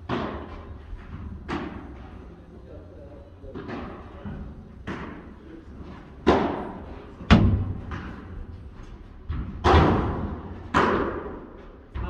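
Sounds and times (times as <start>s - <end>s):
padel rackets hitting ball: 6.2s - 8.3s, 9.3s - 11.5s.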